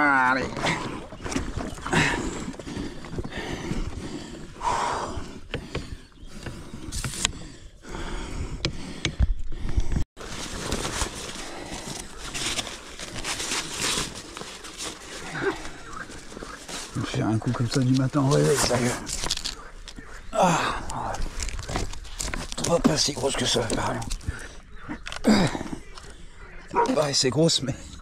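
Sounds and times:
nylon fabric rustling: 10.2 - 19.5
net and gear rustling: 10.2 - 20.0, 20.8 - 24.3.

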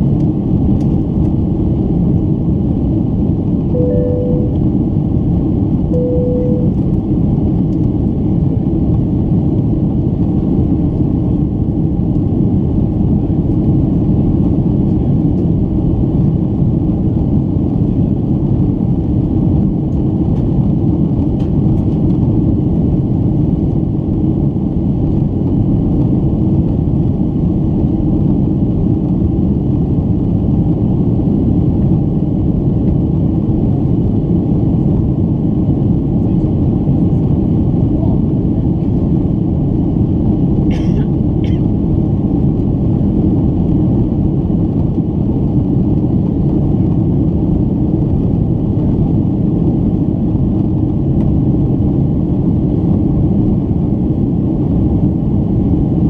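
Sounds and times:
jet engine cabin roar: 0.0 - 56.0
faint steady whine: 3.6 - 7.6.

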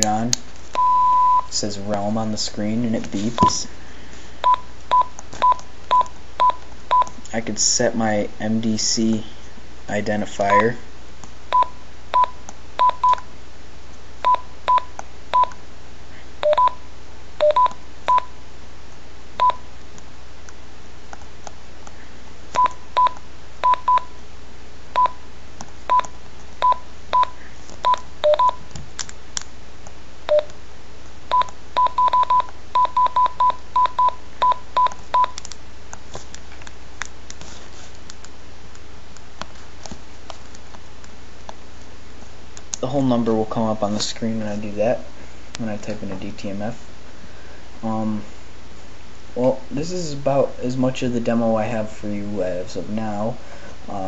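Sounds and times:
radio keypad beeps: 10.5 - 10.7, 16.4 - 16.8, 25.9 - 28.6.

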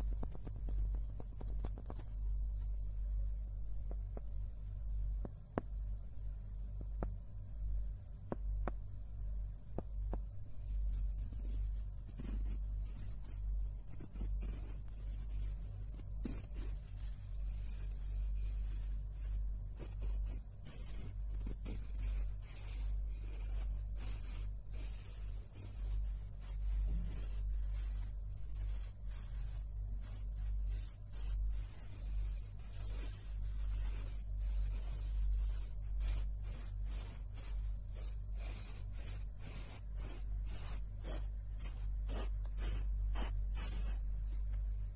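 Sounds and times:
low hum: 0.0 - 19.9.

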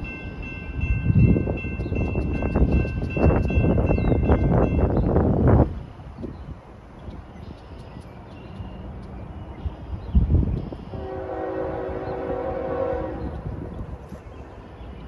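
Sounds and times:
distant train horn blast: 10.8 - 14.1.

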